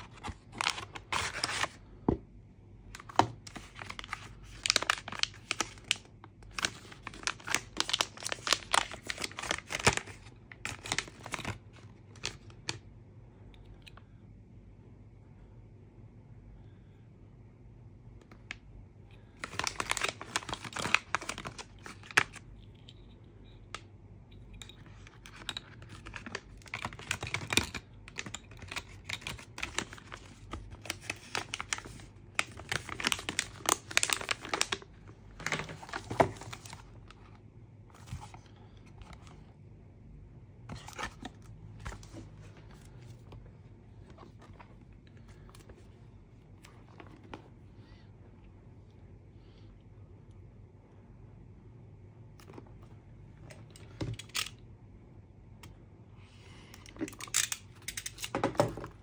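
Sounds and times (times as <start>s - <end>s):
packaging wrap crinkling and tearing: 0.0s - 1.8s, 3.0s - 12.8s, 19.4s - 22.4s, 24.9s - 37.0s.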